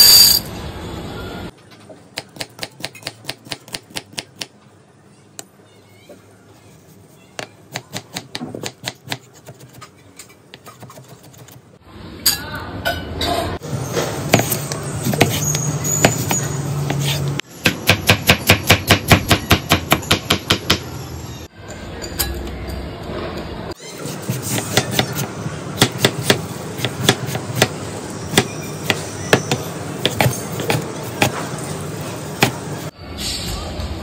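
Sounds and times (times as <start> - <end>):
knife chopping on wooden board: 24.2 - 31.4.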